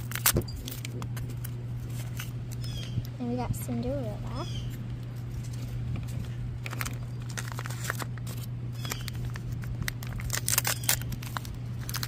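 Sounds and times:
paper wrapper crinkling and tearing: 0.0 - 2.6, 5.1 - 12.0
low hum: 0.0 - 12.0.

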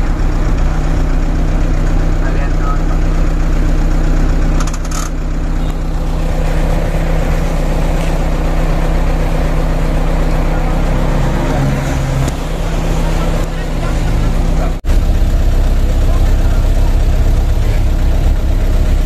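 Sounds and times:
bus engine idling: 0.0 - 19.0
brief rattle: 4.5 - 5.3.

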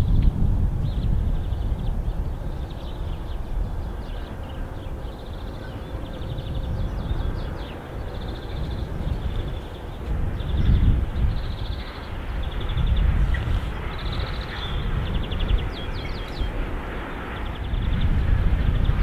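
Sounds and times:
distant freight train rumble: 0.0 - 19.0
small birds chirping: 0.8 - 19.0.

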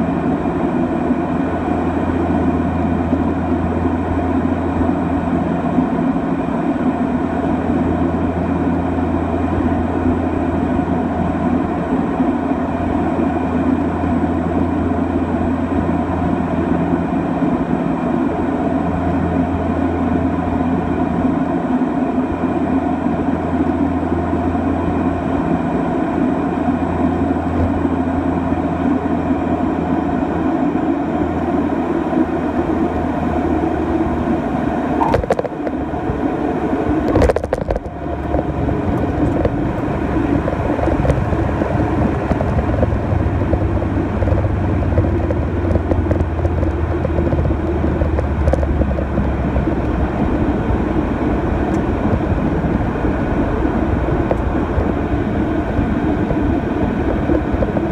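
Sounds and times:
turboprop engines running: 0.0 - 57.9
wheels touching down on runway: 33.4 - 57.9.

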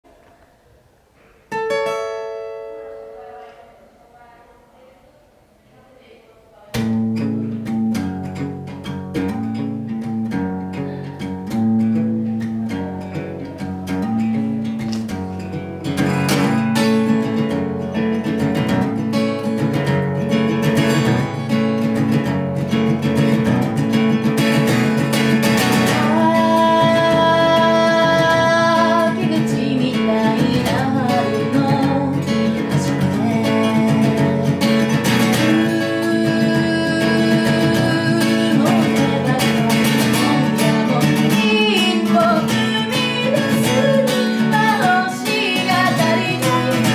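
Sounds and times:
acoustic guitar strumming chords: 1.2 - 4.0, 6.7 - 46.9
woman singing: 25.5 - 46.9.

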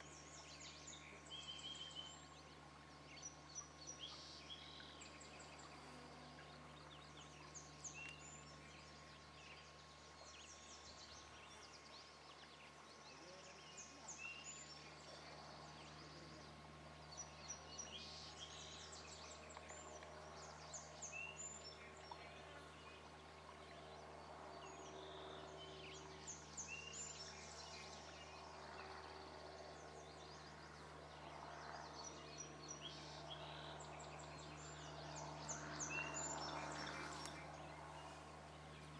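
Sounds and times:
birds chirping: 0.0 - 38.9
faint steady hum: 0.0 - 38.9.

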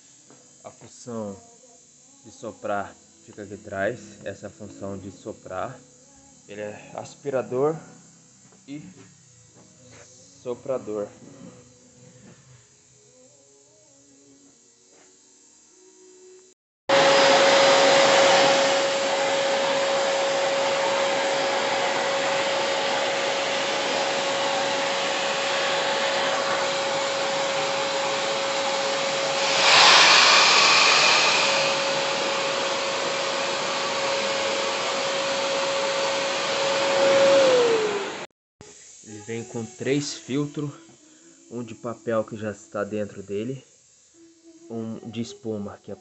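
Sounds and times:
vacuum cleaner motor whine: 0.0 - 46.0
air rushing through hose: 16.9 - 38.2.

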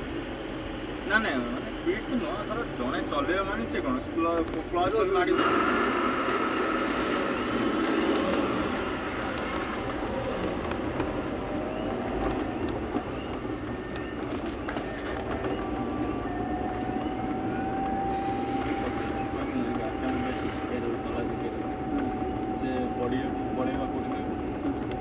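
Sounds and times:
moving vehicle rumbling and rattling: 0.0 - 25.0.

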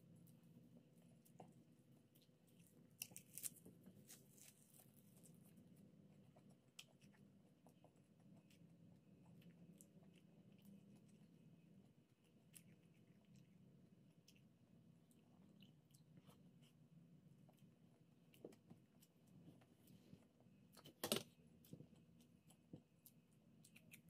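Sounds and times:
chewing leafy greens: 0.3 - 24.0
crisp crunches: 2.9 - 4.9.

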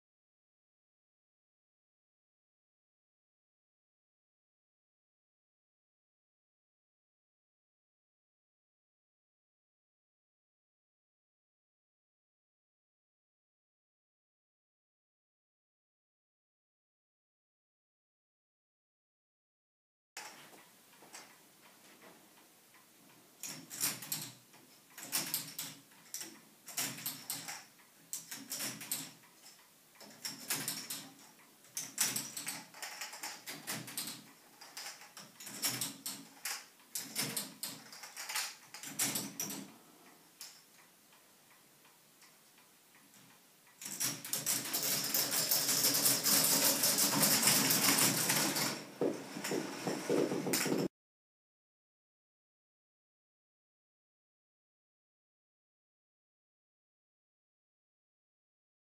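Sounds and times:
plastic mechanism clicking and clacking: 23.4 - 39.6.

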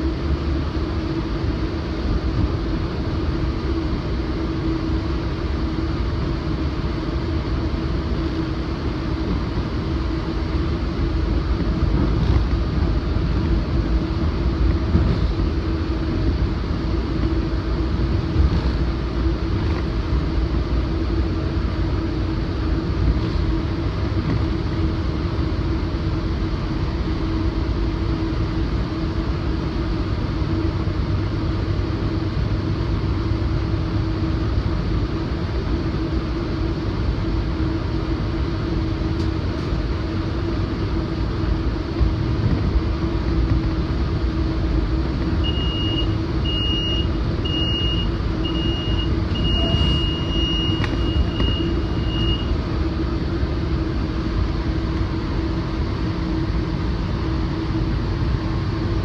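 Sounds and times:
constant low hum: 0.0 - 59.0
train rumble: 0.0 - 59.0
alerter beeping: 45.4 - 52.5.

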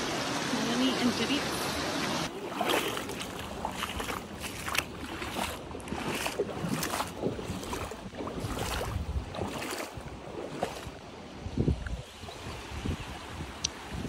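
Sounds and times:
feet splashing in shallow water: 1.3 - 14.0
wind rumbling on microphone: 3.2 - 14.0.

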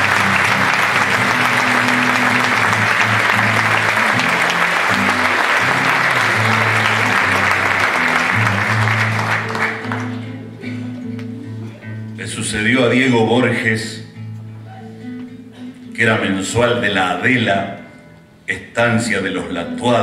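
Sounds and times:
audience applauding: 0.0 - 10.4
acoustic guitar melody: 0.0 - 20.0.

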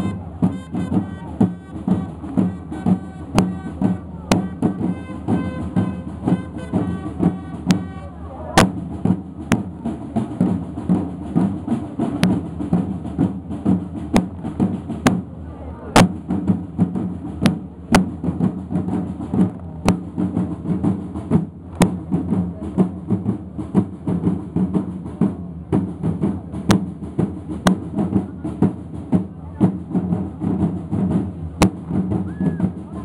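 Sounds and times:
sharp drum cracks: 0.0 - 8.0, 16.0 - 33.0
crowd murmur: 0.0 - 33.0
side drums marching rhythm: 0.0 - 33.0.

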